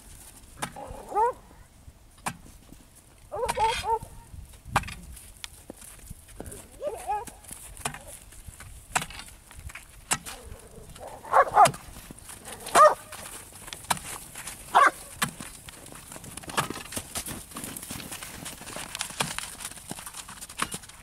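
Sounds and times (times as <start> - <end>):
dog barking: 0.8 - 1.6, 3.3 - 4.1, 6.8 - 7.3, 11.0 - 11.8, 12.4 - 13.1, 14.7 - 15.1.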